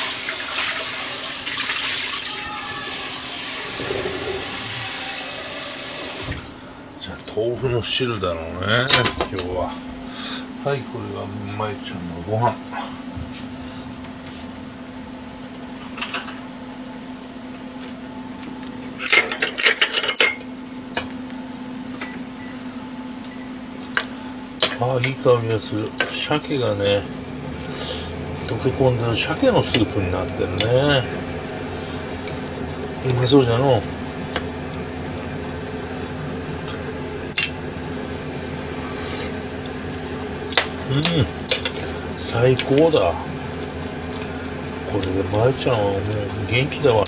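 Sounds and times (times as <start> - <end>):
steady low hum: 3.3 - 47.0
soup simmering: 33.8 - 44.9.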